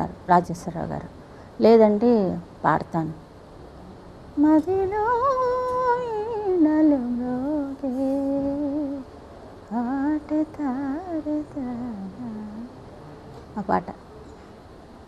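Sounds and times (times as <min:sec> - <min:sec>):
woman singing unaccompanied: 0:04.4 - 0:12.8.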